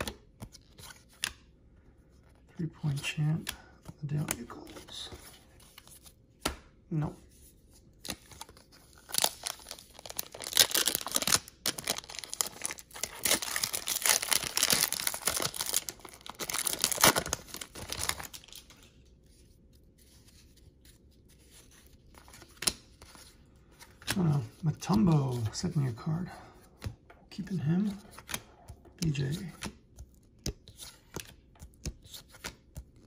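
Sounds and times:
wrapper tearing and crinkling: 9.0s - 18.7s.

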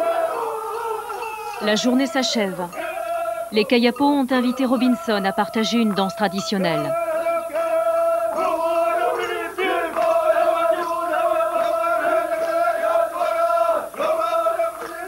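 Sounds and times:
men chanting in unison: 0.0s - 15.0s.

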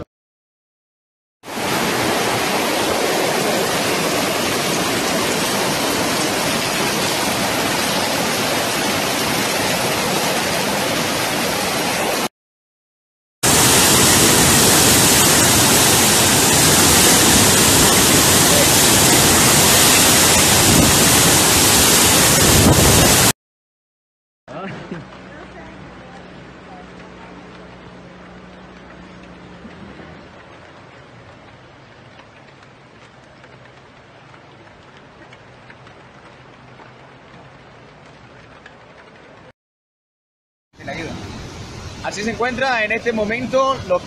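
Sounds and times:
floodwater rushing through street: 1.4s - 12.3s, 13.4s - 23.3s, 24.5s - 39.5s, 40.8s - 44.0s
waterfall pouring into pool: 1.5s - 12.3s, 13.4s - 23.3s, 26.4s - 39.5s, 40.8s - 44.0s.

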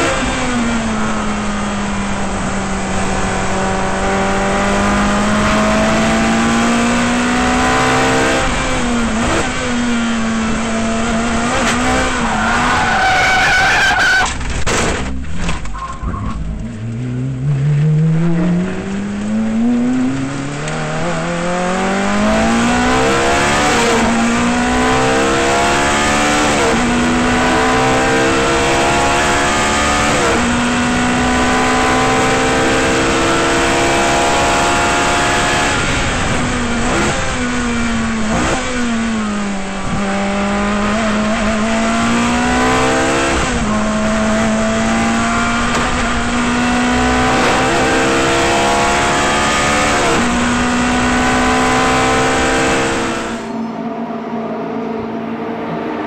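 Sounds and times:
racing engine revving: 0.0s - 53.6s
car accelerating with upshifts: 0.0s - 56.0s
tyres skidding: 11.0s - 21.5s.

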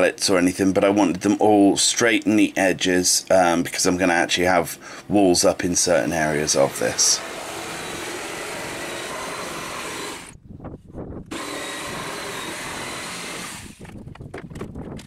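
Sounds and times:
electric jigsaw cutting wood: 6.0s - 10.4s, 11.3s - 14.0s.

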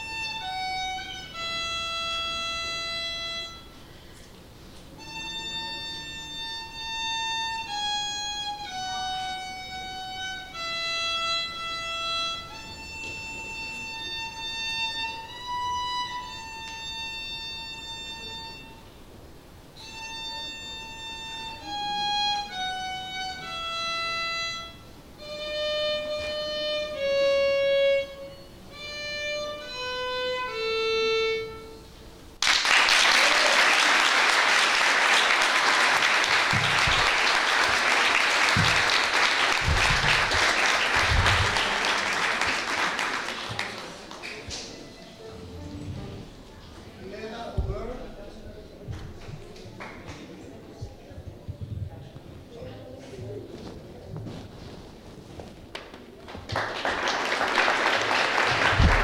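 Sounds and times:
slow violin melody: 0.0s - 3.9s, 4.9s - 32.2s, 35.0s - 42.4s, 44.9s - 46.6s
applause: 32.4s - 44.7s, 56.4s - 59.0s.

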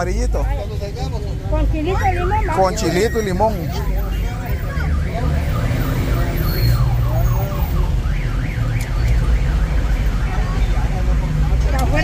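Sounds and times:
street traffic rumble: 0.0s - 12.0s
electronic siren warbling: 1.9s - 10.5s.

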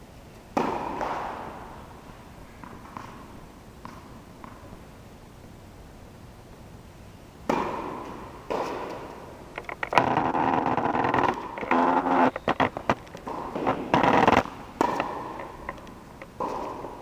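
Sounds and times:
racket hitting tennis ball: 0.5s - 4.8s, 7.4s - 9.3s, 10.3s - 17.0s
crackling and rubbing noise: 9.5s - 17.0s.

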